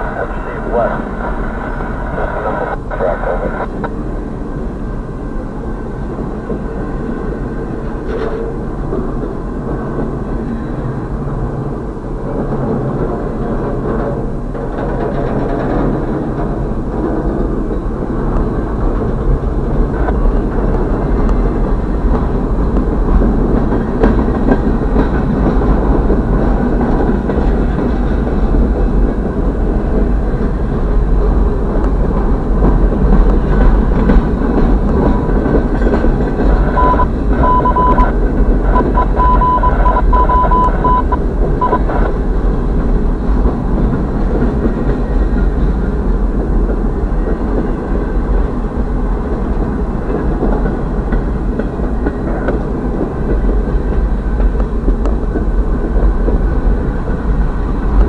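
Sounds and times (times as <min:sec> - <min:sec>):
train wheels rumbling on rails: 0:00.0 - 0:58.0
high broken tone: 0:36.7 - 0:41.9.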